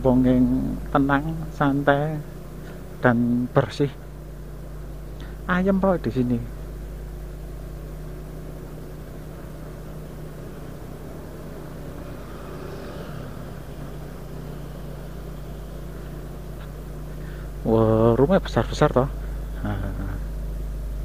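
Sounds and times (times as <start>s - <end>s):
vehicle engine running steadily: 0.0s - 21.0s
road and wind noise: 6.6s - 17.7s.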